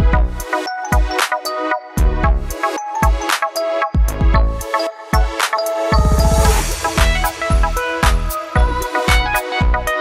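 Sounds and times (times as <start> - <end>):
electronic music with deep bass: 0.0 - 10.0
hissing sweep: 5.8 - 8.6.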